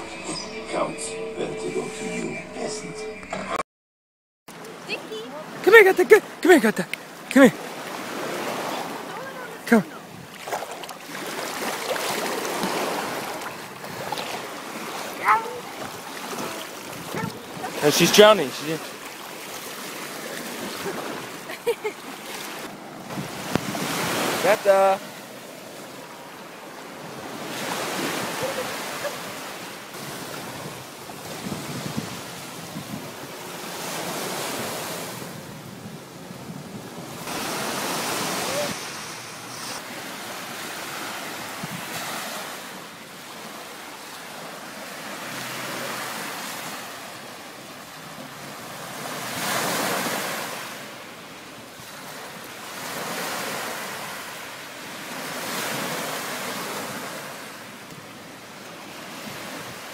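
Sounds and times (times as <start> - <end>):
small waves breaking on sand: 4.5 - 59.9
wind buffeting microphone: 12.6 - 17.8, 23.0 - 24.3, 30.3 - 33.4, 41.5 - 42.0.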